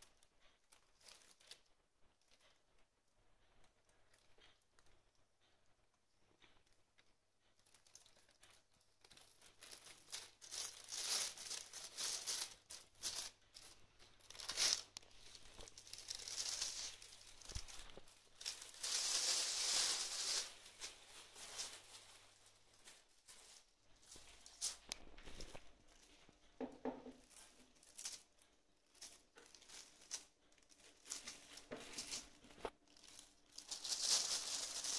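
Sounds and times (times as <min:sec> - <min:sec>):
plastic bag crinkling: 0:07.6 - 0:26.3, 0:27.1 - 0:34.9.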